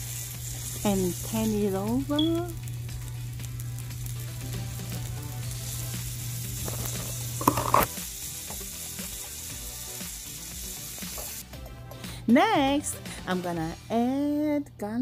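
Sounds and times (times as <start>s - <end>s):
meat sizzling in a pan: 0.0s - 11.6s.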